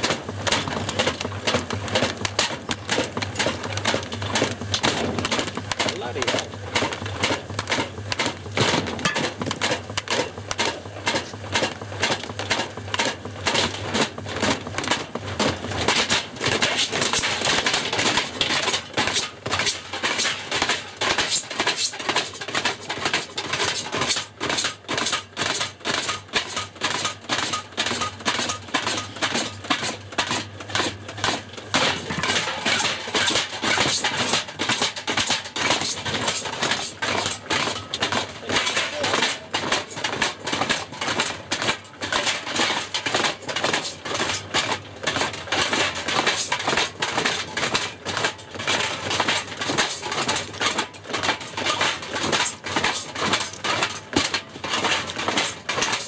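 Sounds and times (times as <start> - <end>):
objects clattering in washing machine drum: 0.0 - 56.0.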